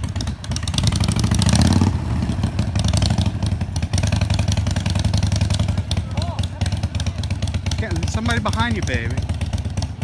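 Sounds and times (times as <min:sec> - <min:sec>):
motorcycle engine running at low revs: 0:00.0 - 0:10.0.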